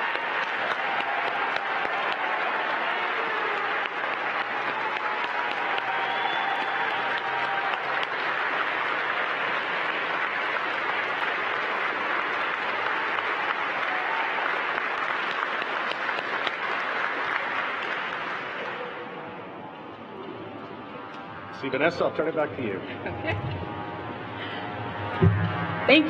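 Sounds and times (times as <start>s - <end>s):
audience applause: 0.0s - 26.0s.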